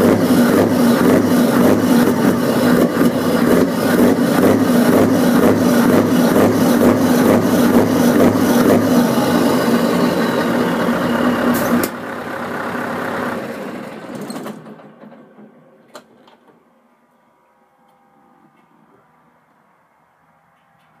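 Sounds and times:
diesel truck engine idling: 0.0 - 15.2.

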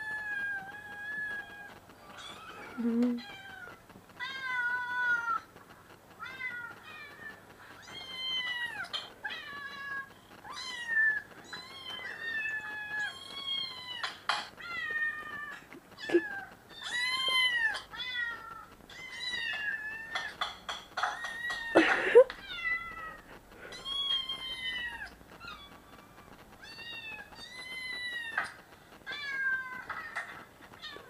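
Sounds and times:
kittens meowing: 6.2 - 20.4, 21.0 - 31.0.

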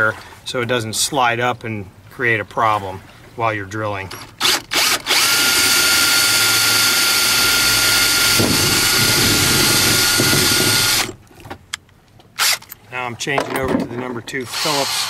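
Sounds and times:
cordless drill whining: 4.4 - 11.2, 12.4 - 12.7, 14.5 - 15.0.

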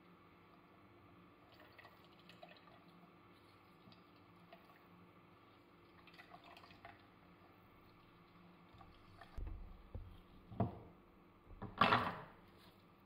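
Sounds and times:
soft knocks: 9.4 - 10.9.

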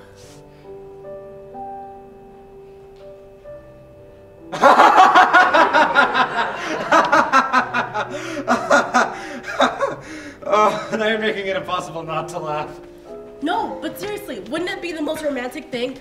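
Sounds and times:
young man laughing loudly: 4.6 - 11.4.

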